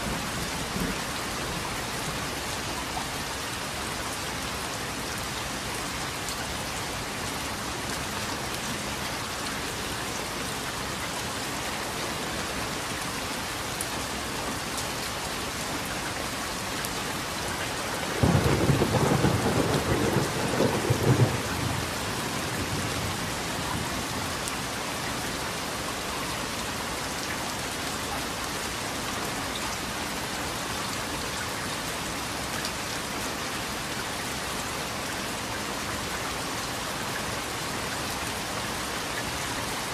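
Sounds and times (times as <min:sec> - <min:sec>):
steady rain falling: 0:00.0 - 0:39.9
thunder clap rumbling: 0:18.1 - 0:23.4.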